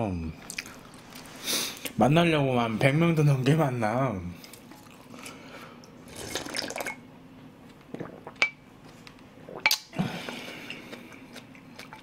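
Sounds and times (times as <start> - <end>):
person sipping broth: 7.9 - 8.5.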